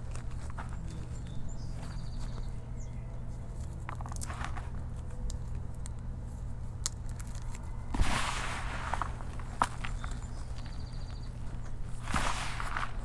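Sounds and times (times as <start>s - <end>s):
fingers crumbling chalk powder: 3.3s - 13.0s.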